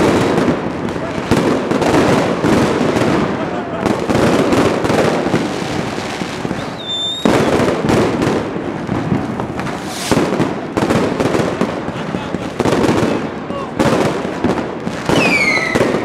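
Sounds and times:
fireworks banging and crackling: 0.0 - 16.0
loud firework burst: 0.0 - 16.0
high firework whistle: 6.4 - 7.8, 9.6 - 10.5, 15.1 - 16.0.

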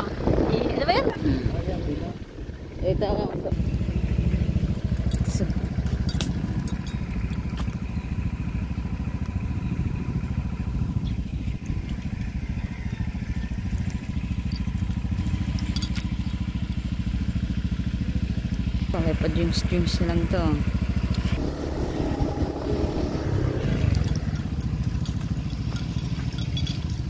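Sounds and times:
motorcycle engine running: 0.0 - 27.0
light clicks and rattles: 5.0 - 7.8, 13.7 - 16.9, 23.7 - 27.0.

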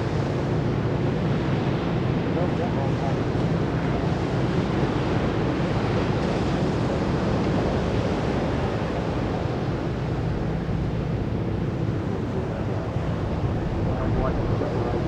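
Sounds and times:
surf: 0.0 - 15.0
wind: 0.0 - 15.0
low steady drone: 8.6 - 15.0.

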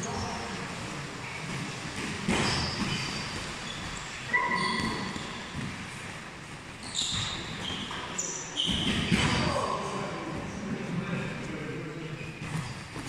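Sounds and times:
shoes squeaking on canvas: 1.2 - 5.8, 6.8 - 9.3.

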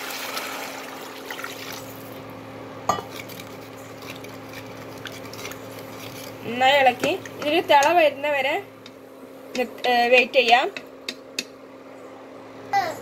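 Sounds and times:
water pouring and splashing: 0.0 - 2.1
steady low hum: 0.9 - 13.0
spatula stirring in pot: 3.1 - 8.1.

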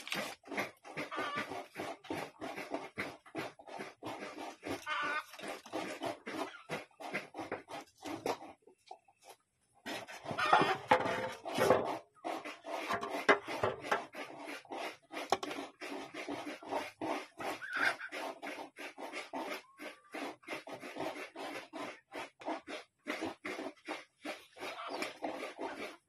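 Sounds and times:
scraping and tapping strokes: 0.0 - 26.0.

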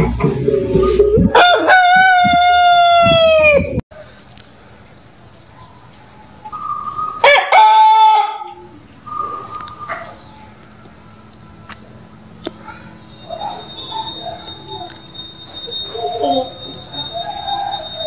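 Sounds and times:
rooster crowing: 1.3 - 3.6, 7.2 - 8.6, 13.0 - 18.0.

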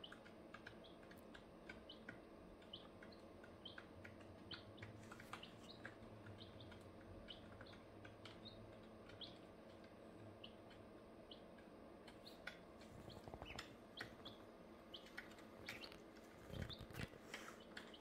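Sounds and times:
ducklings and chicks peeping: 0.0 - 18.0.

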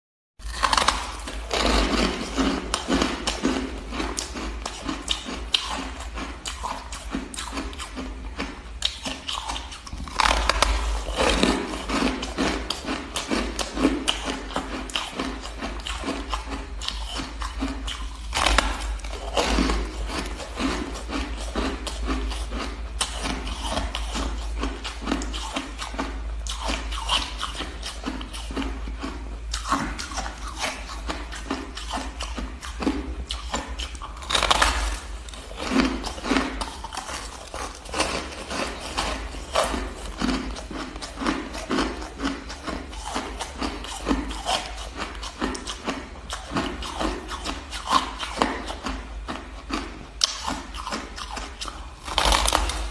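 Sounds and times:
chewing ice crunches: 0.4 - 52.9.

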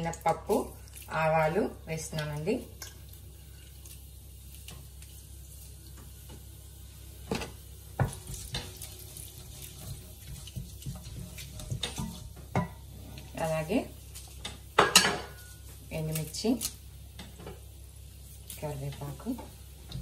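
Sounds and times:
spices sizzling in oil: 0.0 - 20.0.

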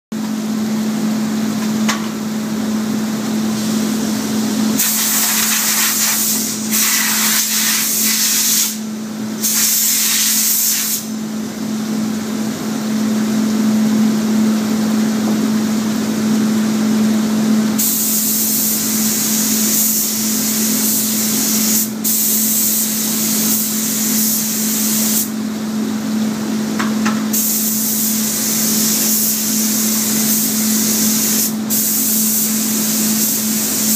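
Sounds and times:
spray gun hissing: 4.8 - 8.8, 9.4 - 11.1, 17.8 - 25.3.

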